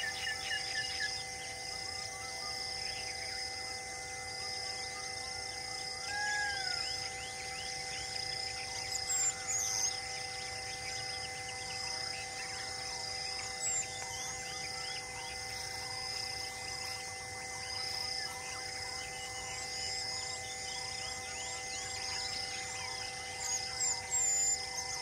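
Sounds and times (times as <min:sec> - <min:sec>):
pulsing insect chorus: 0:00.0 - 0:25.0.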